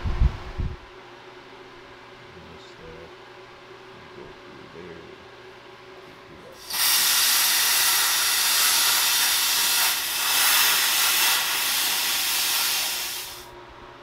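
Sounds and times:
plasma cutter hissing: 6.6 - 13.5.

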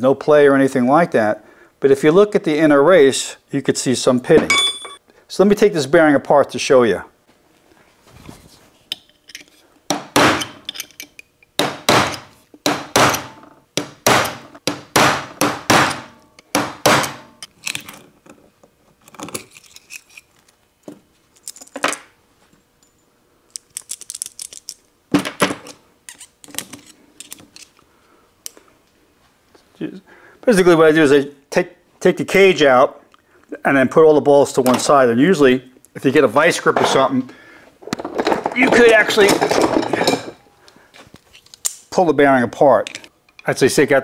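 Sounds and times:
metal pick clinking on bearing: 4.4 - 5.0.

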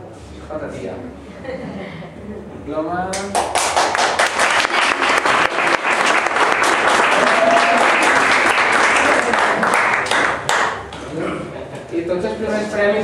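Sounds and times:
audience clapping: 3.2 - 11.0.

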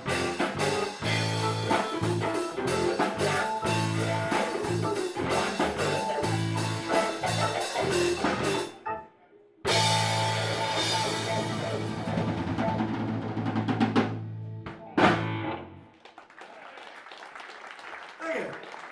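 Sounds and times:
drums and cymbals: 0.0 - 8.7, 9.7 - 14.3
blues band playing: 0.0 - 9.1, 9.7 - 15.9.

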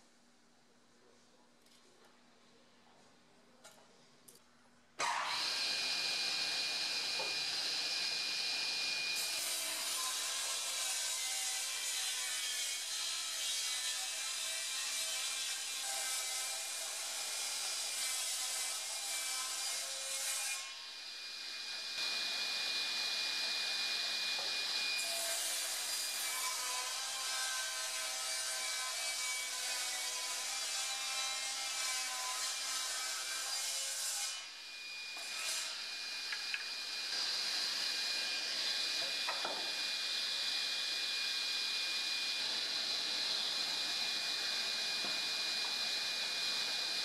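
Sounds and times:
table saw ripping wood: 5.0 - 7.5.

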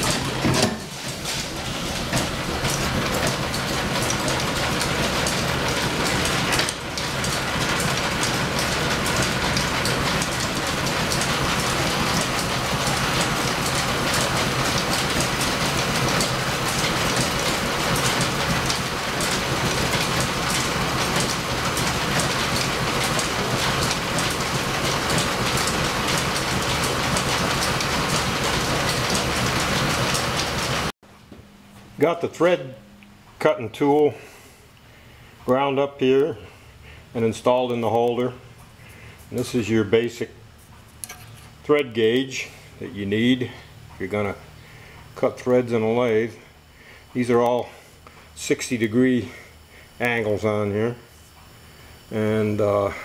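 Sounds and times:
lathe whirring and clattering: 0.0 - 30.9.

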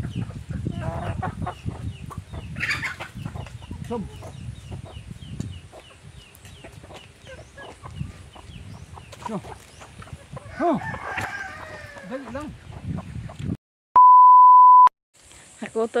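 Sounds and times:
chickens clucking: 0.0 - 13.6.

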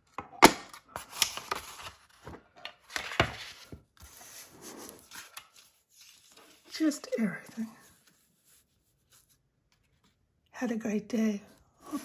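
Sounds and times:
paper rustling and sliding: 1.0 - 10.2.

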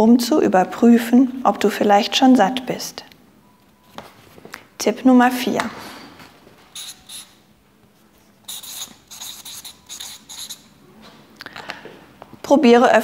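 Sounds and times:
marker squeaking on paper: 6.7 - 7.5, 8.4 - 10.7.

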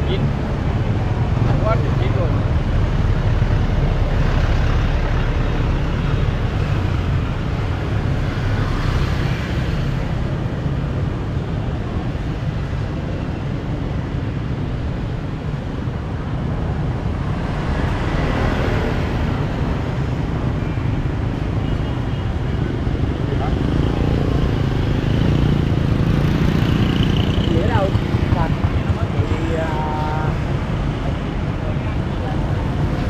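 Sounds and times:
rumble of passing vehicles: 0.0 - 33.0.

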